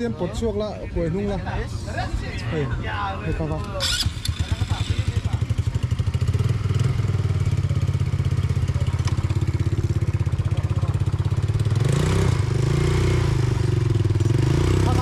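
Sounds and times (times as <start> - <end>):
quad bike engine idling: 3.4 - 15.0.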